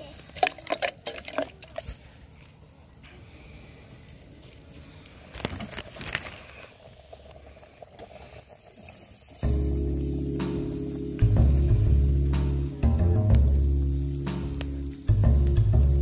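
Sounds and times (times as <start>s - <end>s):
hot oil hissing and crackling: 0.0s - 16.0s
music: 9.4s - 16.0s.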